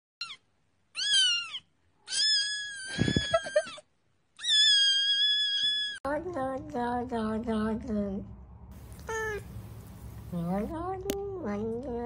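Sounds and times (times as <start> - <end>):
kitten meowing: 1.0 - 3.2, 4.4 - 6.0, 9.0 - 9.5.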